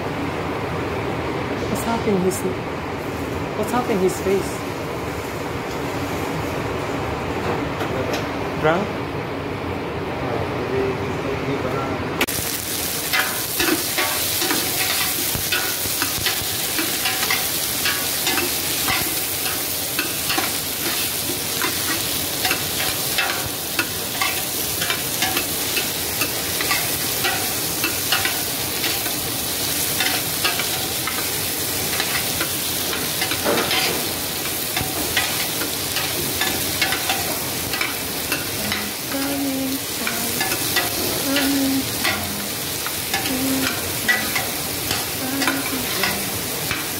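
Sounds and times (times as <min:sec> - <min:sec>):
vegetables sizzling in oil: 0:12.3 - 0:46.9.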